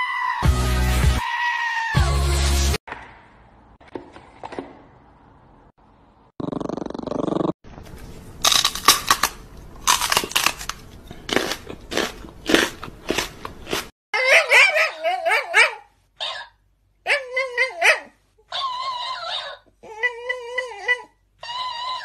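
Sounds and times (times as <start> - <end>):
dog growling and snarling: 6.4 - 7.6
crunching and crackling: 8.4 - 13.9.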